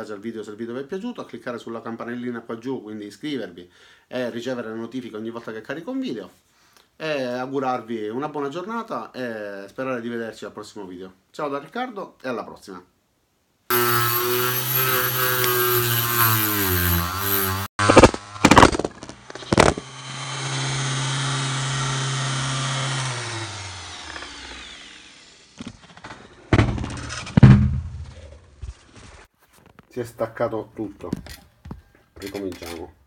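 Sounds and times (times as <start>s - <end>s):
electric die grinder whining: 13.7s - 26.4s
knocks and clatter: 25.7s - 28.8s.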